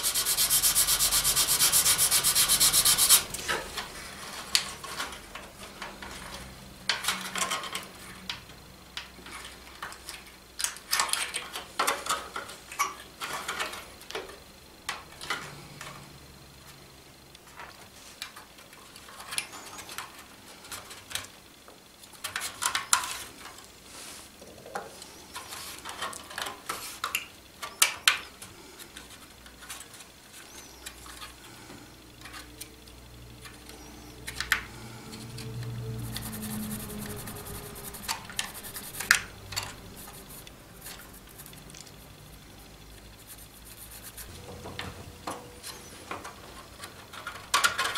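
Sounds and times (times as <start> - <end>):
sanding block rubbing wood: 0.0 - 3.4, 36.0 - 39.2, 40.0 - 41.6, 43.2 - 44.3.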